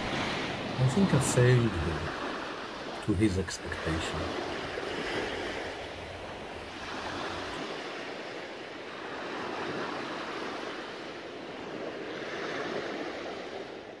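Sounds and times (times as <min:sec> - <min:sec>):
surf washing onto sand: 0:00.0 - 0:14.0.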